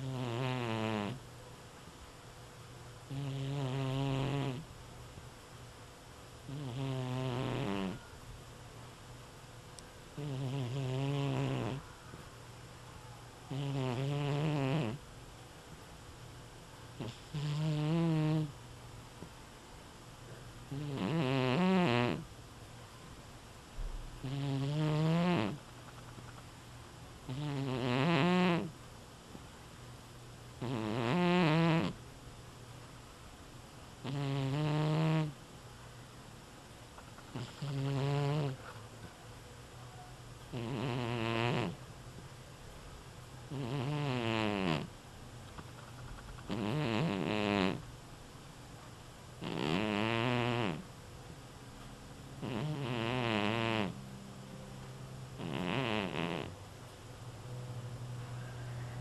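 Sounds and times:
cat snoring: 0.0 - 1.2, 3.1 - 4.7, 6.5 - 8.0, 10.2 - 11.8, 13.5 - 15.0, 17.0 - 18.6, 20.7 - 22.3, 24.2 - 25.6, 27.3 - 28.8, 30.6 - 32.0, 34.0 - 35.4, 37.3 - 38.6, 40.5 - 41.8, 43.5 - 44.9, 46.5 - 47.8, 49.4 - 50.9, 52.4 - 54.0, 55.4 - 56.6.

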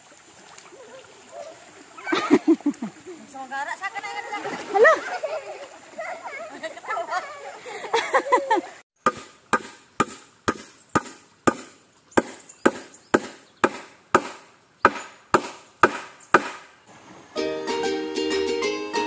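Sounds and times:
hammer striking nail into wood: 9.0 - 16.7.

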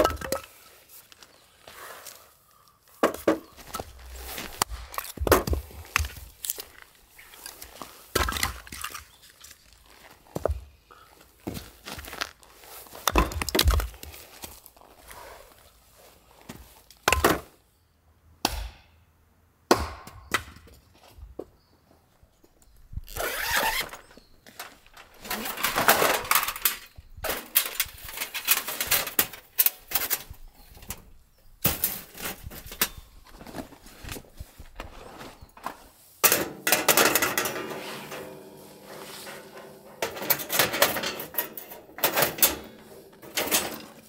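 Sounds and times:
metal panels clinking: 23.6 - 33.1, 36.2 - 44.0.

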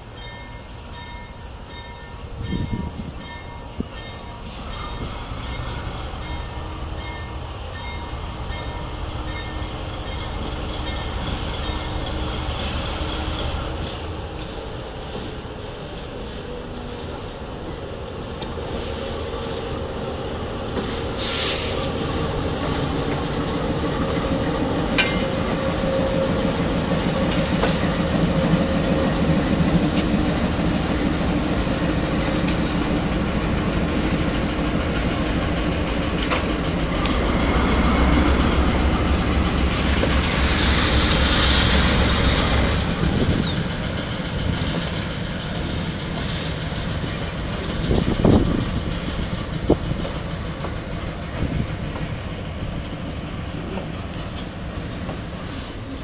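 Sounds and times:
diesel locomotive engine running: 0.7 - 56.0
wheel and rail hiss: 4.3 - 6.2, 10.5 - 56.0
high-pitched metallic sounds: 24.9 - 27.8.

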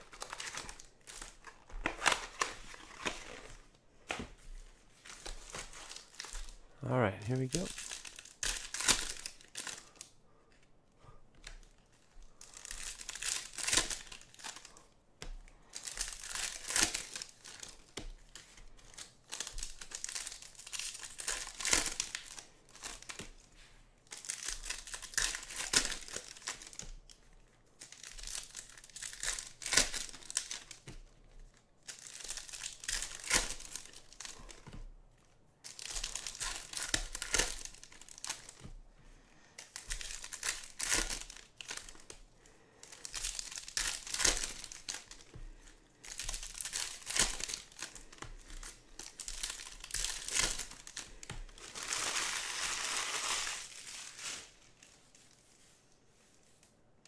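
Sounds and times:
foil wrappers tearing and crinkling: 0.0 - 4.2, 5.0 - 6.6, 7.4 - 10.1, 11.6 - 14.8, 15.6 - 23.4, 24.0 - 27.2, 27.8 - 30.9, 31.8 - 34.8, 35.6 - 38.7, 39.5 - 55.3.

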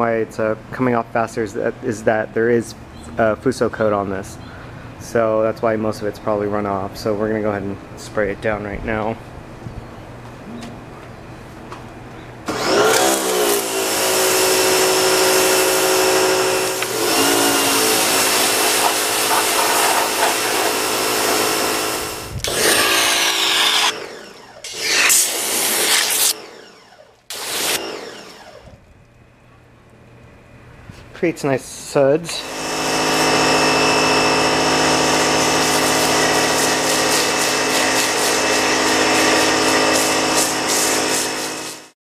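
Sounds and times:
pressure washer motor whining: 12.5 - 28.8, 32.3 - 42.0
water jet hissing: 13.4 - 23.9, 35.4 - 41.9.

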